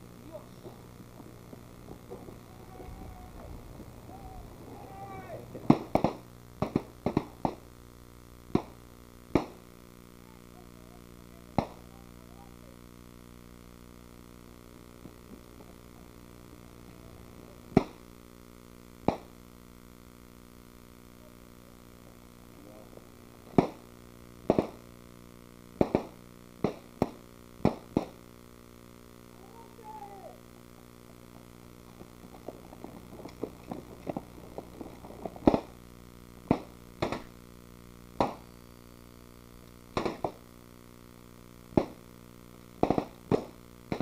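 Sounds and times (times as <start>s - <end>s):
steady low hum: 0.0s - 44.0s
rifle shots: 5.6s - 7.7s, 8.5s - 9.6s.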